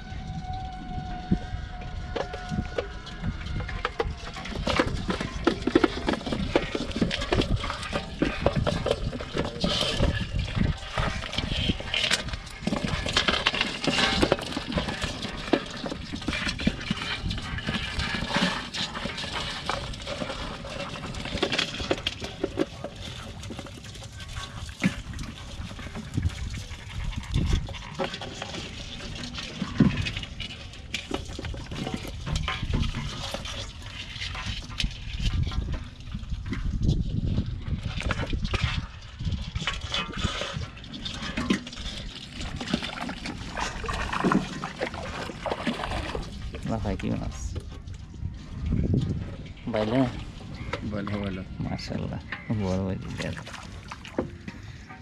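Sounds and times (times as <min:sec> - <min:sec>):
water splashing in a tub: 0:02.4 - 0:47.5, 0:52.7 - 0:54.6.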